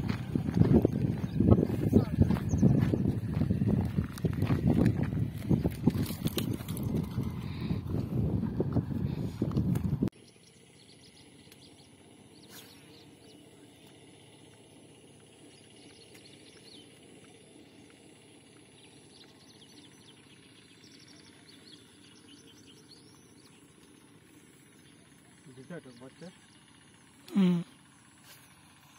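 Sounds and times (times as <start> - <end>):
faint bird chirps: 10.2 - 28.9.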